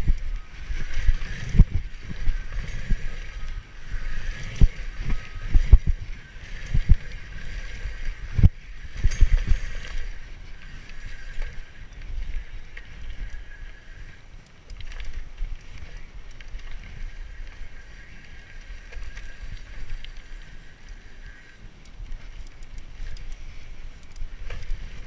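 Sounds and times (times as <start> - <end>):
wind on microphone: 0.0 - 14.2.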